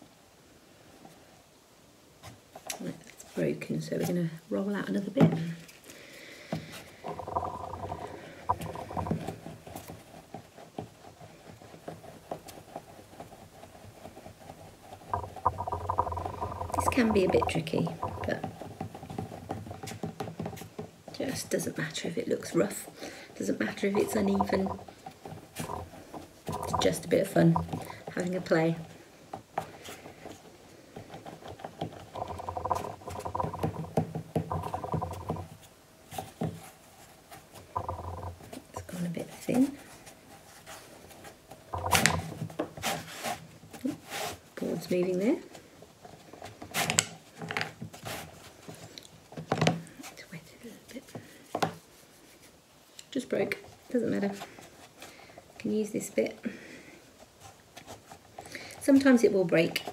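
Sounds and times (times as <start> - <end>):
clay rolling on wooden board: 7.0 - 9.4, 11.8 - 20.5, 23.8 - 28.0, 31.0 - 35.5, 37.7 - 38.9, 41.8 - 42.4.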